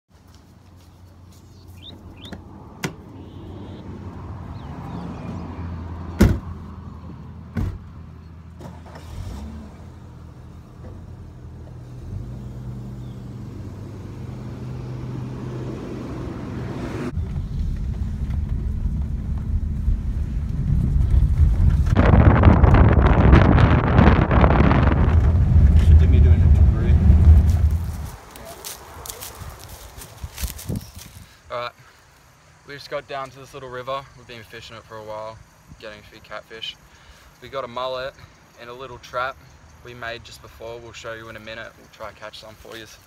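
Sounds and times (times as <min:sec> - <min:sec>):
car driving on dirt track: 0:01.9 - 0:29.7
car doors shutting: 0:06.1 - 0:06.5, 0:07.5 - 0:07.9, 0:08.6 - 0:09.8
car engine running: 0:17.2 - 0:28.1.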